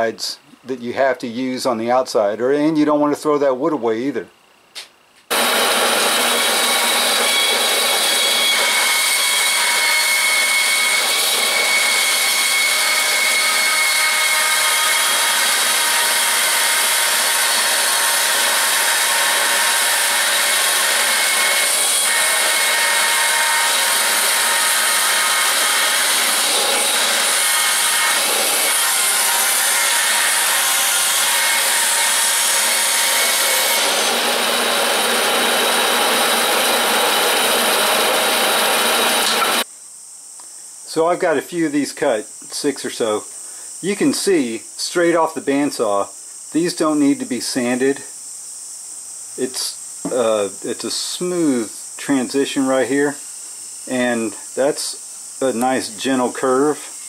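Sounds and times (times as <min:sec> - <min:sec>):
band saw cutting wood: 0:05.3 - 0:39.7.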